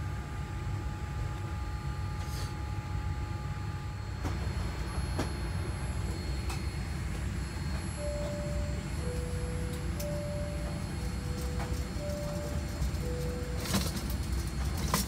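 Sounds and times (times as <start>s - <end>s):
airliner cabin rumble: 3.4s - 15.0s
long held chime notes: 4.9s - 14.6s.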